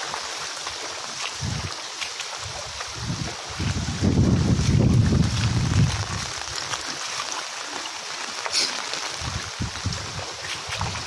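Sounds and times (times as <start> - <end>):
floodwater rushing: 0.0 - 11.0
wind buffeting microphone: 1.3 - 1.8, 2.4 - 6.7, 9.2 - 11.0.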